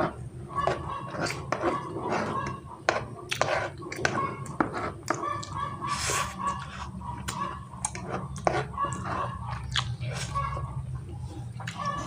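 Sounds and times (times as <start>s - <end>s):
fork scraping on a tray: 0.0s - 10.7s
wet chewing and lip-smacking: 3.3s - 10.4s, 11.5s - 12.0s.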